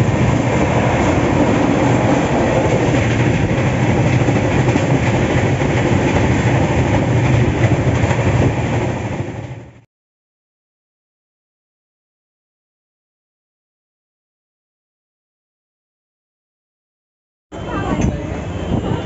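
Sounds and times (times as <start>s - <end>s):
clickety-clack of rails: 0.0s - 9.8s, 17.6s - 19.0s
train wheels rumbling on rails: 0.0s - 9.8s, 17.6s - 19.0s.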